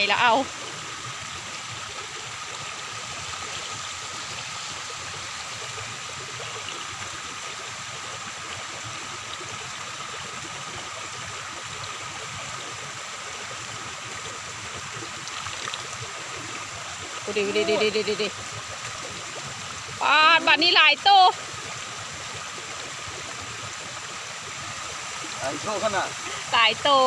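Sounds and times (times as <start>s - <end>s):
floodwater rushing: 0.0s - 27.0s.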